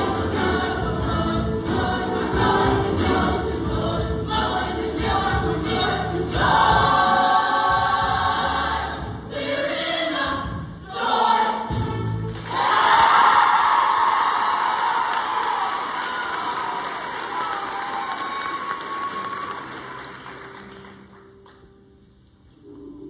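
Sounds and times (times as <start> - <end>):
choir singing with accompaniment: 0.0 - 13.7.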